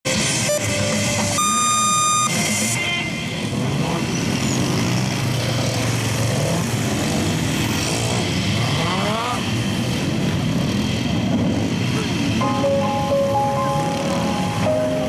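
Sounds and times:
electronic beeps: 0:00.5 - 0:02.5
motorcycle engine revving: 0:03.4 - 0:12.4.

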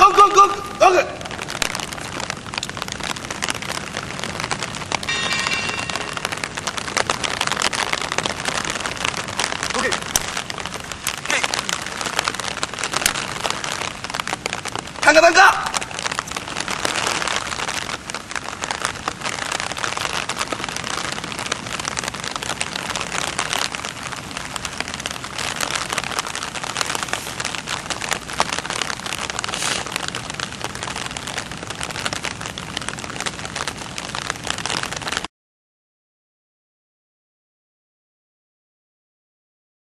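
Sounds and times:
steady rain falling: 0:00.0 - 0:35.3.

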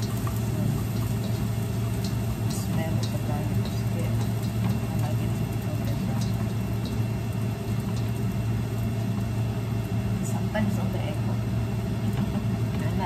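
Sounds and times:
steady low hum: 0:00.0 - 0:13.0
stir-frying in a wok: 0:00.0 - 0:13.0
spatula clicking against pan: 0:02.0 - 0:04.8.

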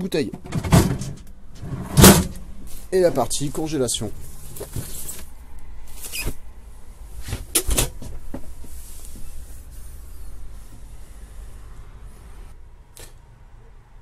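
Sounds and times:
refrigerator door latching: 0:00.4 - 0:02.4.

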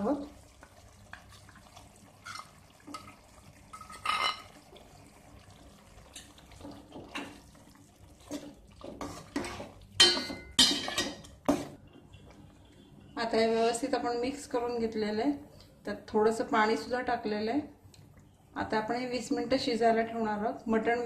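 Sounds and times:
ladle stirring wet curry: 0:00.2 - 0:12.3
paste scraped into pot: 0:08.3 - 0:09.8.

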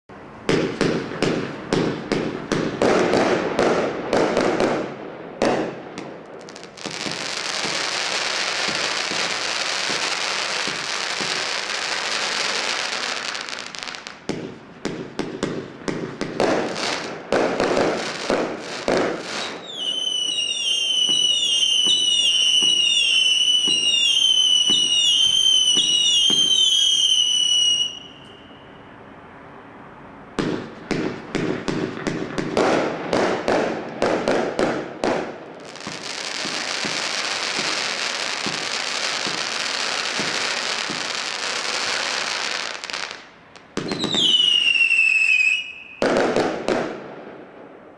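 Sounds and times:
firework bangs: 0:00.4 - 0:28.6, 0:30.4 - 0:47.9
whistling firework shots: 0:00.5 - 0:29.1, 0:30.4 - 0:47.5
firework hissing: 0:06.4 - 0:14.2, 0:35.6 - 0:43.2.

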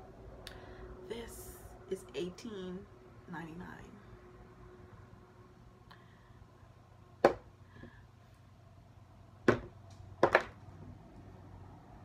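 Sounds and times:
plastic bottles knocking on hard surface: 0:09.5 - 0:10.6.

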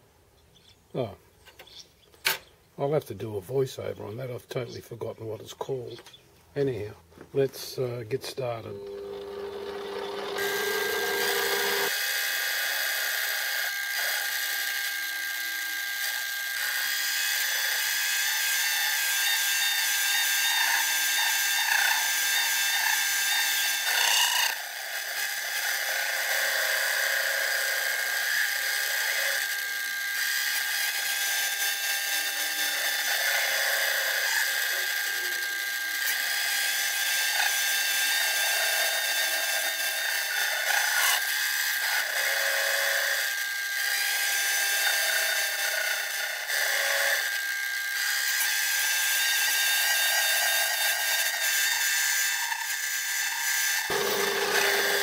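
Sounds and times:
lathe motor whine: 0:08.7 - 0:14.6, 0:53.9 - 0:55.0
lathe tool cutting metal: 0:08.8 - 0:14.7, 0:30.2 - 0:55.0.

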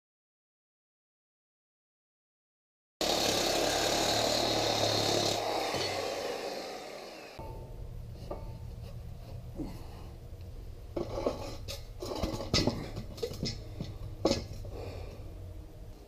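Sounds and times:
metal tubes clanking and scraping: 0:07.4 - 0:10.0, 0:10.9 - 0:15.0
low steady hum: 0:07.4 - 0:16.0.

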